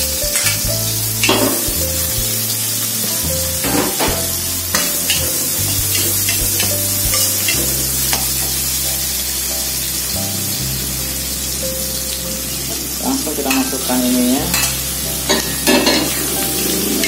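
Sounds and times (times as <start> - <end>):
food sizzling in hot oil: 0.0 - 17.0
metal spatula scraping a pan: 13.4 - 17.0.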